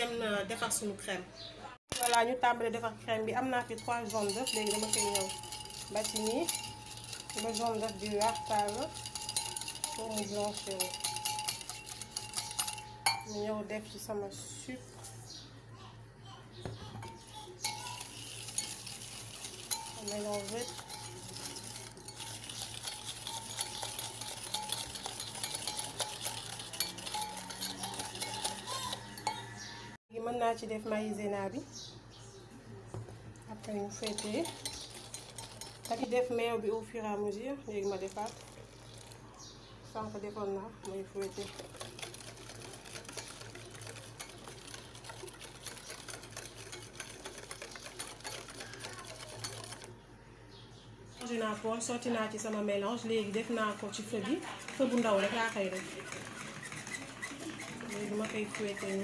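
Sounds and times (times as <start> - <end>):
wire whisk scraping bowl: 3.2 - 14.6, 17.0 - 29.9, 33.5 - 37.0, 37.7 - 39.2, 40.0 - 50.0, 51.2 - 59.0.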